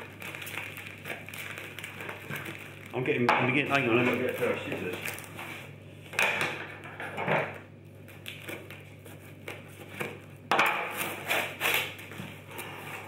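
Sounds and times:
tape and cardboard ripping: 0:08.1 - 0:13.0.

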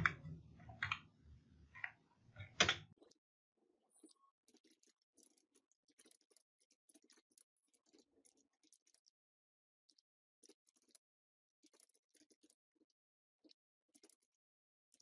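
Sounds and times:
keyboard keystroke clicks: 0:02.6 - 0:02.8.

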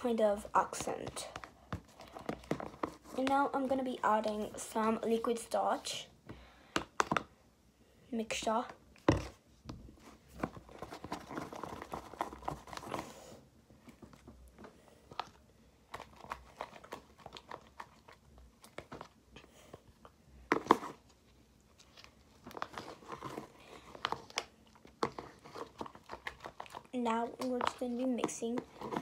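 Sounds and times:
slime squishing and crackling: 0:21.8 - 0:29.0.

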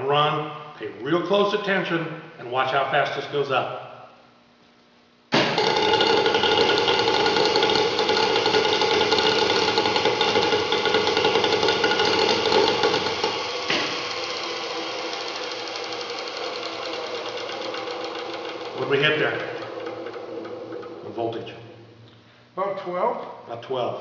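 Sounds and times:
engine mechanical whir: 0:05.6 - 0:22.0.

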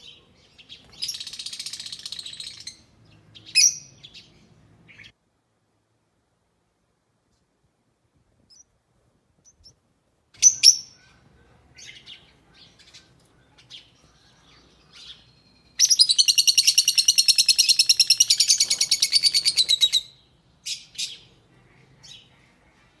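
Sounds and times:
lovebird chirping: 0:00.0 - 0:05.2, 0:09.4 - 0:23.0
rapid high bird chattering: 0:01.0 - 0:02.8, 0:15.8 - 0:20.0.

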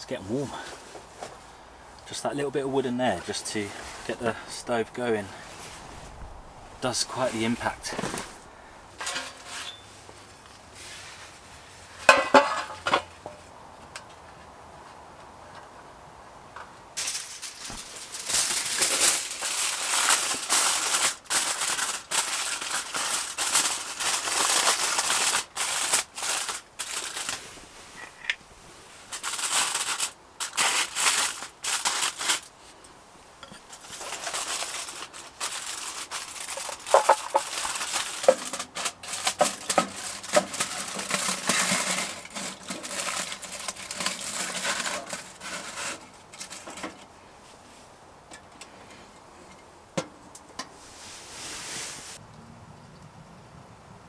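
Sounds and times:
low hiss: 0:00.0 - 0:38.8, 0:50.3 - 0:52.4.

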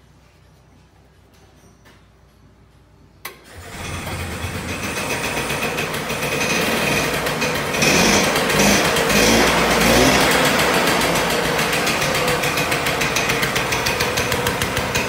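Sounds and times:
two-stroke engine running: 0:03.5 - 0:15.0.

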